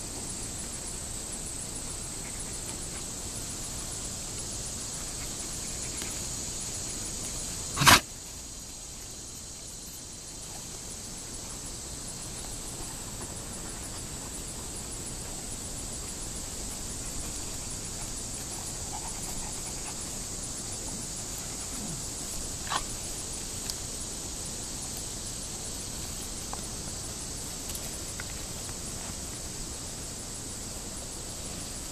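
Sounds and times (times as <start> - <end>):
steady high hiss: 0.0 - 31.9
dog squealing: 7.8 - 8.0.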